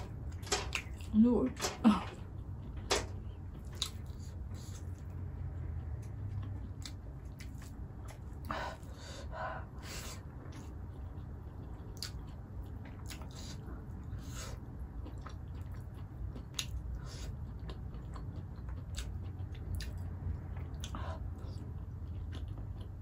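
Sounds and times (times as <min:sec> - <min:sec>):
steady low hum: 0:00.0 - 0:23.0
person chewing food: 0:02.1 - 0:23.0
wet smacks and small clicks: 0:11.6 - 0:13.4.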